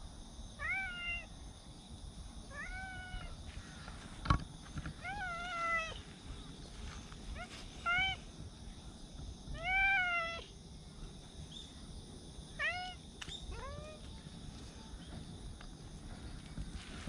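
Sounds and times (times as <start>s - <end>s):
cat meowing: 2.5s - 3.4s, 9.6s - 10.4s.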